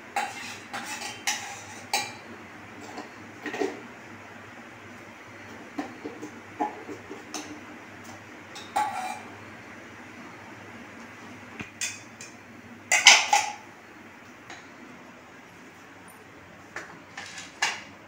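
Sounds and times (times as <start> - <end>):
metal spoon scraping a pan: 0.2 - 2.2, 8.6 - 9.3.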